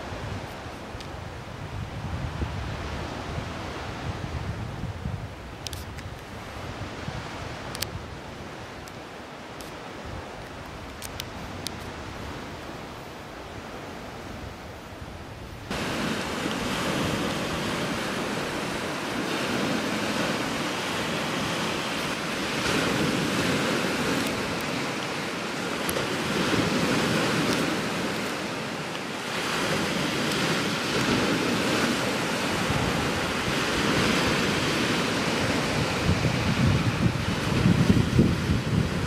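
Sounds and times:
wind on microphone: 0:00.0 - 0:39.0
faint clicks: 0:07.7 - 0:08.0, 0:10.4 - 0:11.9.

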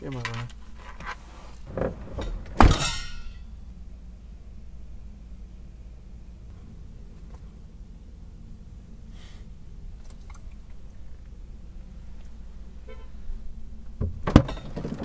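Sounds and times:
low vehicle rumble: 0:00.0 - 0:15.0
thump: 0:01.7 - 0:03.2.

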